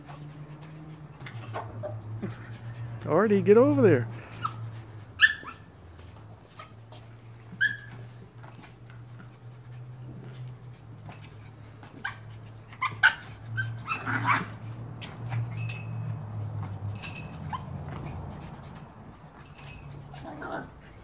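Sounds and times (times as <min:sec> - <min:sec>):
small dog yipping and barking: 0:04.3 - 0:05.8, 0:07.5 - 0:08.2, 0:11.9 - 0:14.6, 0:17.4 - 0:18.0.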